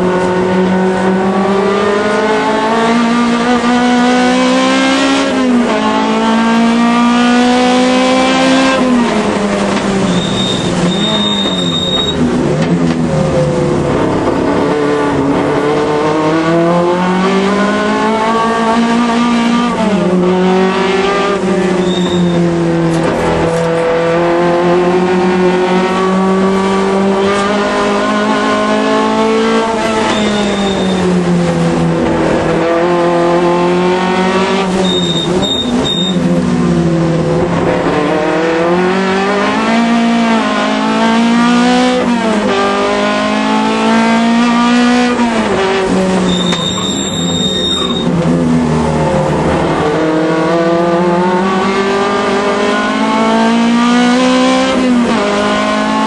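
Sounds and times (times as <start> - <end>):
race car engine revving: 0.0 - 56.0
high squeals: 10.0 - 12.3, 21.8 - 22.5, 30.0 - 31.1, 46.2 - 48.2.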